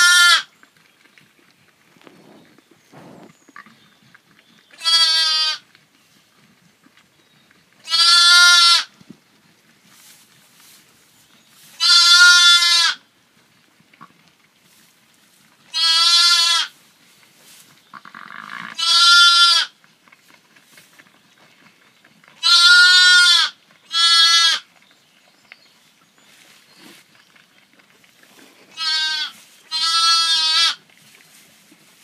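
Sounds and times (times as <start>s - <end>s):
lamb bleating: 0.0s - 0.5s, 4.8s - 5.6s, 7.8s - 8.9s, 11.8s - 13.0s, 15.7s - 16.7s, 18.0s - 19.7s, 22.4s - 24.6s, 28.7s - 30.8s.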